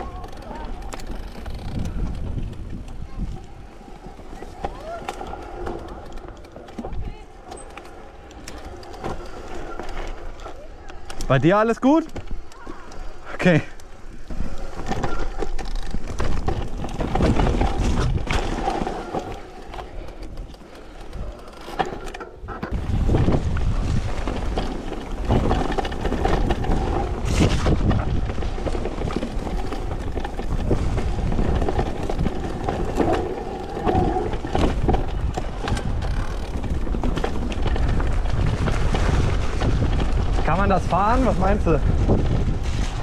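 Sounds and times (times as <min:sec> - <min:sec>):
wind on microphone: 0:00.0 - 0:07.3, 0:16.4 - 0:20.4, 0:22.4 - 0:43.0
bike rattling over bumps: 0:00.0 - 0:43.0
tyres rumbling over dirt: 0:00.0 - 0:43.0.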